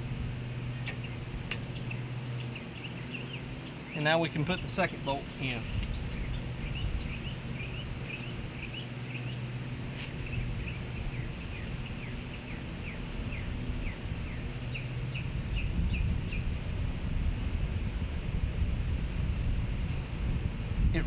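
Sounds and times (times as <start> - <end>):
bird chirping: 0.7 - 9.5, 10.2 - 16.5.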